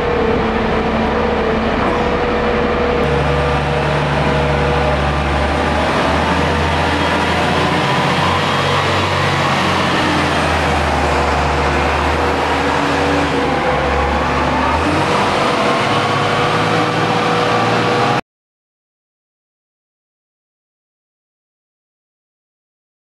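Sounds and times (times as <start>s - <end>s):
heavy diesel machinery running: 0.0s - 18.2s.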